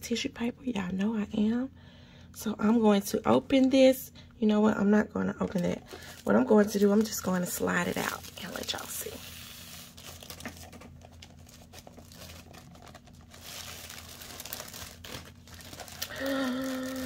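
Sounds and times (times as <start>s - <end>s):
tissue paper and plastic crinkling: 5.6s - 17.0s.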